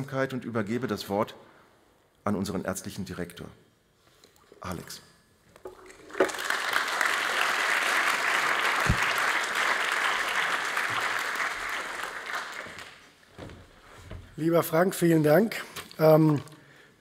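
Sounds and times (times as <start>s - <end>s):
audience applauding: 6.0s - 13.2s.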